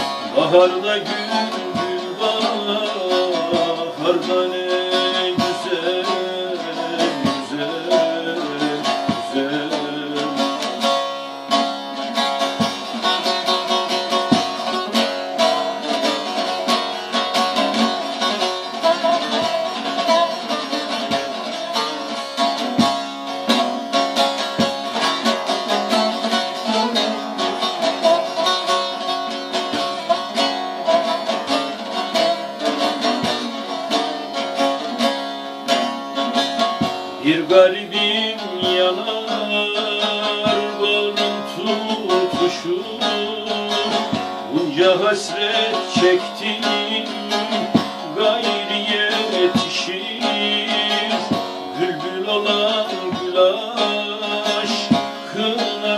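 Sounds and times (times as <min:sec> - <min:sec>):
long-necked lute folk melody: 0:00.0 - 0:55.9.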